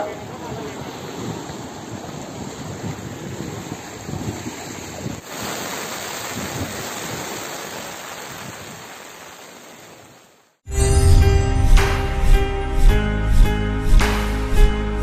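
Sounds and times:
rushing floodwater: 0.0 - 10.6
wind buffeting microphone: 0.1 - 5.3, 6.2 - 7.4
heavy rain hiss: 5.2 - 10.5.

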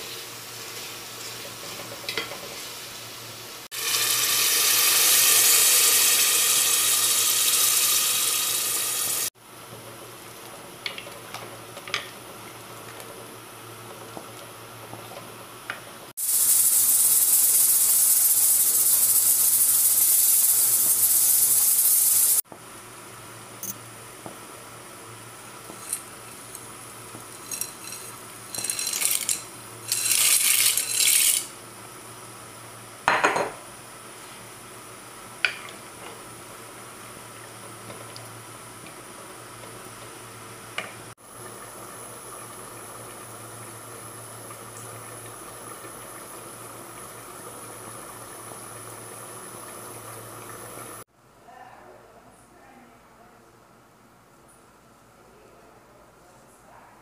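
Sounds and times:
steady hiss from pot: 0.0 - 9.4, 16.1 - 22.4, 25.0 - 31.6, 34.1 - 51.1
dry pasta rattling into pot: 27.4 - 31.5.

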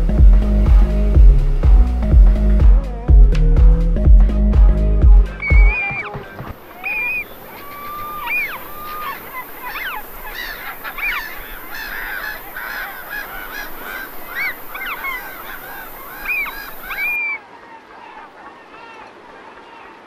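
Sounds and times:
flock of birds calling: 5.2 - 20.0.

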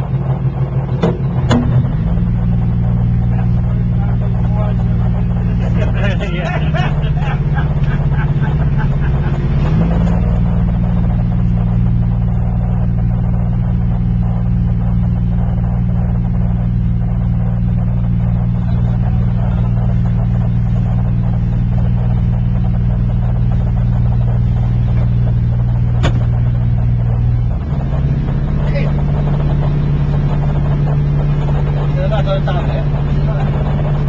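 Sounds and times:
boat engine droning: 0.0 - 34.0.

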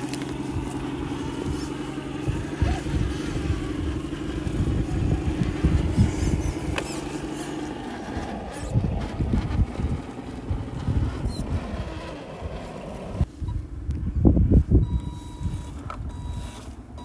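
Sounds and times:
tyres crunching over gravel: 0.0 - 13.3
electric motors whining: 0.0 - 13.6.

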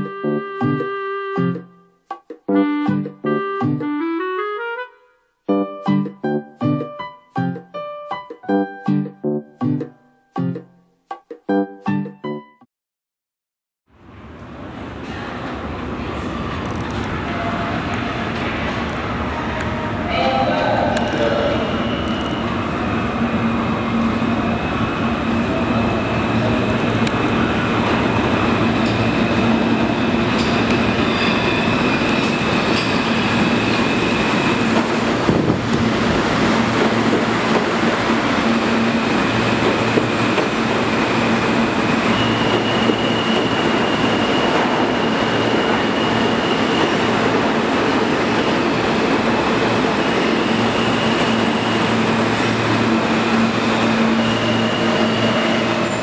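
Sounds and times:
subway train rumbling on rails: 13.9 - 56.0
train motor whine: 49.8 - 56.0.

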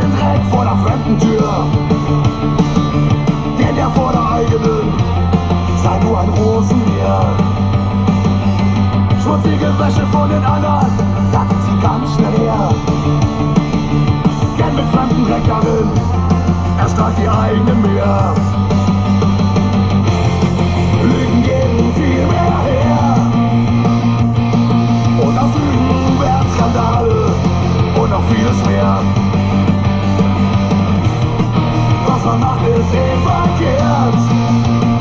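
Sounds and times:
person singing: 0.0 - 2.2, 3.4 - 7.7, 9.1 - 13.2, 14.4 - 18.7, 20.9 - 23.8, 25.0 - 29.3, 31.9 - 35.0
rock music with guitars: 0.0 - 35.0.

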